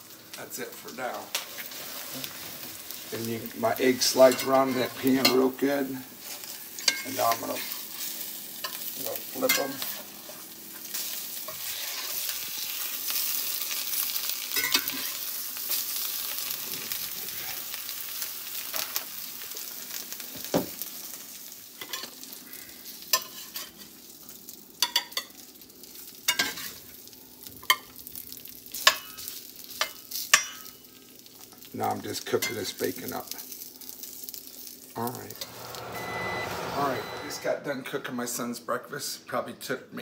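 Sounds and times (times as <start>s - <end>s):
eggs sizzling in pan: 0.0s - 37.5s
metal spatula scraping pan: 35.3s - 37.5s.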